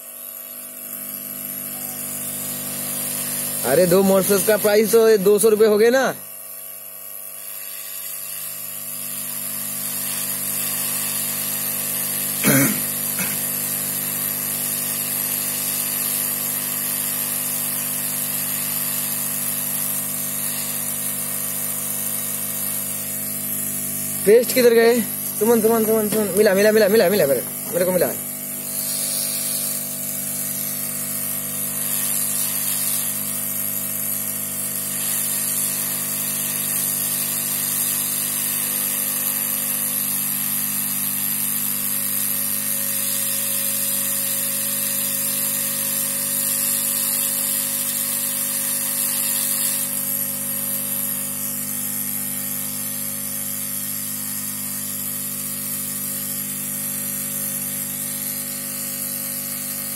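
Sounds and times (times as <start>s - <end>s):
hiss of hot air: 24.4s - 33.5s, 34.7s - 38.5s, 43.0s - 50.1s.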